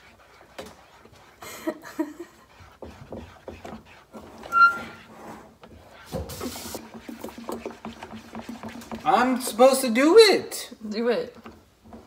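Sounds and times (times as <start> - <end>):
spatula scraping saucepan: 0.0 - 10.0
short high-pitched squeak: 4.5 - 5.0.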